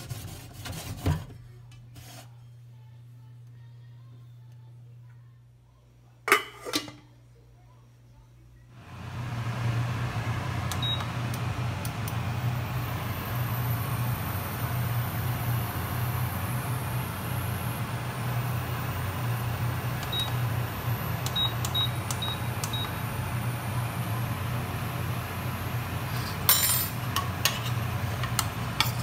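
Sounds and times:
steady low hum: 0:07.2 - 0:29.0
cooktop control panel beeps: 0:10.5 - 0:16.8, 0:17.4 - 0:25.7.

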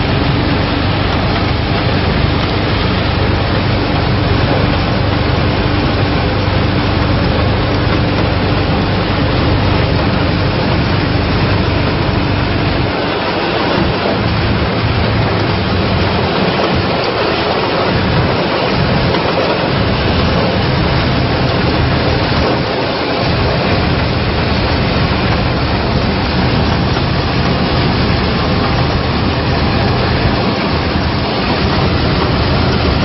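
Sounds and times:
combine harvester running: 0:00.0 - 0:33.0.

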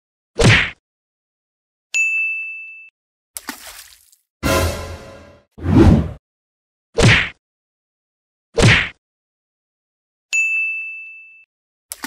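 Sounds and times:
whoosh sound effects: 0:04.4 - 0:06.2.

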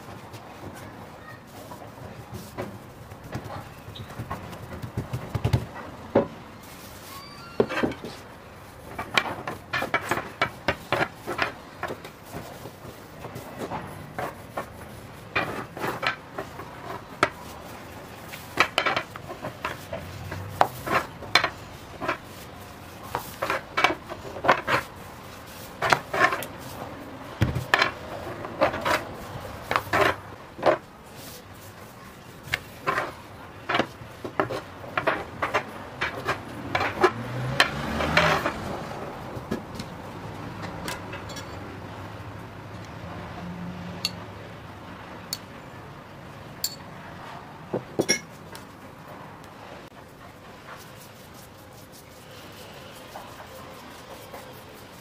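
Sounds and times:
rolling pin knocking on wooden table: 0:03.3 - 0:06.3, 0:27.4 - 0:27.9.

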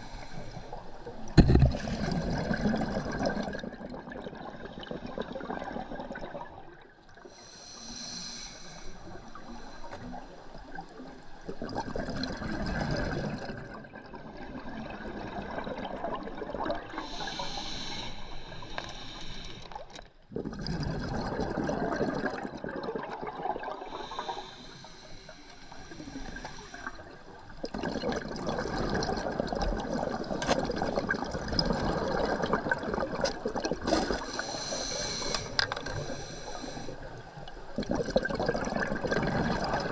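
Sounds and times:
regulator hiss on inhale: 0:00.0 - 0:01.0, 0:07.3 - 0:10.5, 0:17.0 - 0:19.9, 0:23.8 - 0:27.1, 0:34.2 - 0:37.2
bubbling exhale underwater: 0:01.3 - 0:06.9, 0:11.5 - 0:17.7, 0:19.8 - 0:24.7, 0:26.0 - 0:39.9.

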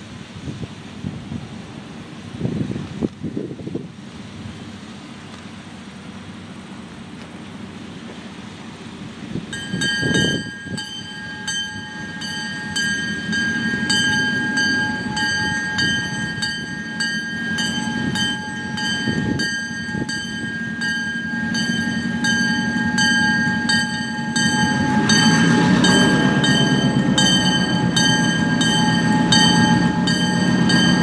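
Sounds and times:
diesel locomotive engine rumble: 0:00.0 - 0:31.0
locomotive bell ringing: 0:09.5 - 0:31.0.

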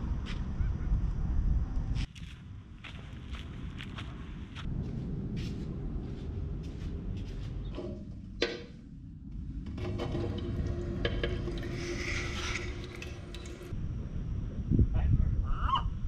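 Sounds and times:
steady hum: 0:01.2 - 0:16.0.

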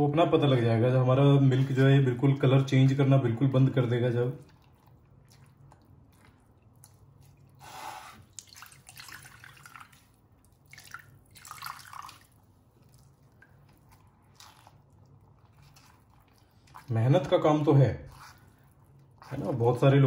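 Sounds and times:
wet squelching of mash squeezed by hand: 0:01.4 - 0:20.0.

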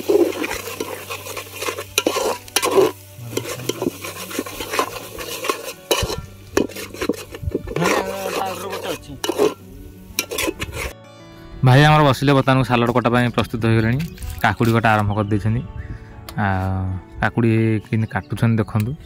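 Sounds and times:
curry sizzling: 0:00.0 - 0:11.0
spatula scraping metal pot: 0:00.0 - 0:11.0.

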